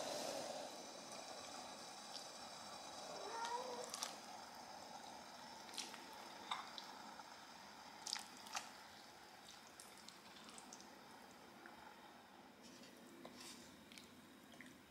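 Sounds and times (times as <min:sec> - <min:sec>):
wet squishes and plops: 0:03.8 - 0:04.2, 0:05.7 - 0:06.1, 0:08.0 - 0:08.8, 0:09.4 - 0:10.9.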